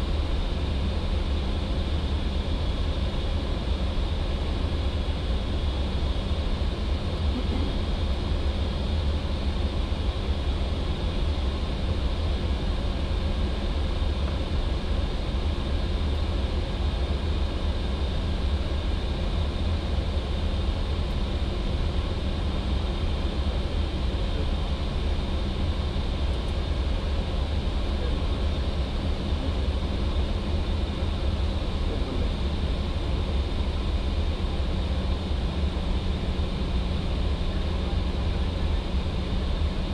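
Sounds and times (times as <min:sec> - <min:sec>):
airflow and engine rumble: 0:00.0 - 0:39.9.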